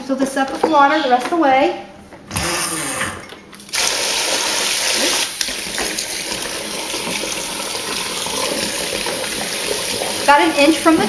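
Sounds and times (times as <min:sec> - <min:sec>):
water pouring into plastic bucket: 0:03.7 - 0:11.0.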